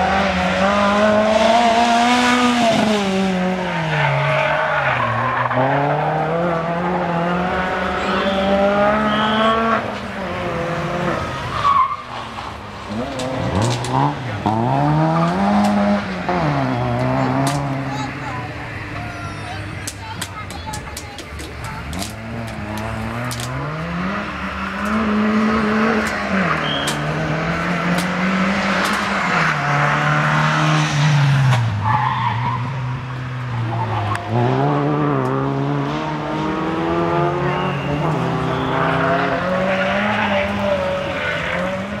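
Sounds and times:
rally car engine revving: 0.0s - 42.0s
tyre squeals: 26.4s - 27.2s.

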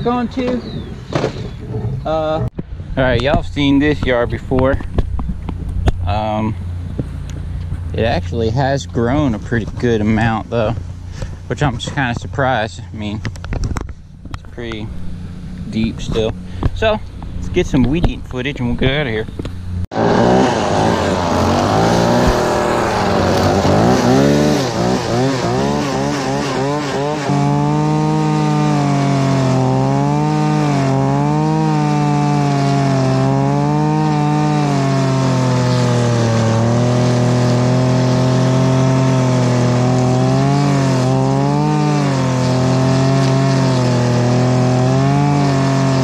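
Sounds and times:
string trimmer cutting grass: 19.9s - 46.0s.

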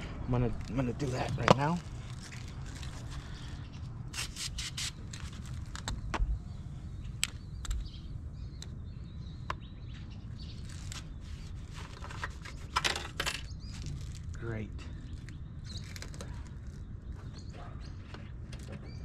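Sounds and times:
birds chirping: 0.0s - 4.1s, 4.9s - 19.0s
low outdoor rumble: 4.8s - 19.0s.

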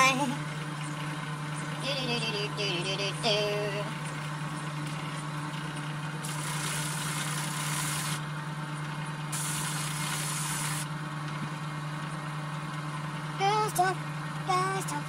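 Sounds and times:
steady low hum: 0.0s - 15.0s
hissing bursts: 6.2s - 8.2s, 9.4s - 10.9s.

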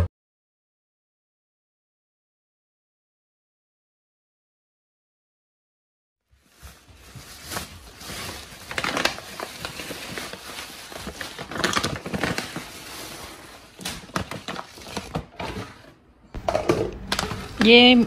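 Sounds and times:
plastic bags crinkling: 6.3s - 15.8s.

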